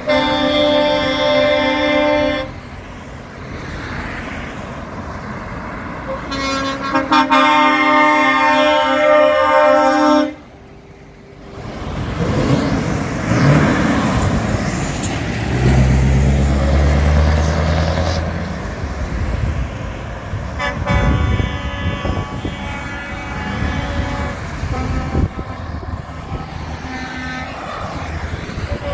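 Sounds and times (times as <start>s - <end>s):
truck air horn: 0.0s - 2.7s, 6.1s - 10.5s, 20.5s - 28.9s
trucks driving past: 0.0s - 28.9s
truck pulling away: 10.7s - 20.5s.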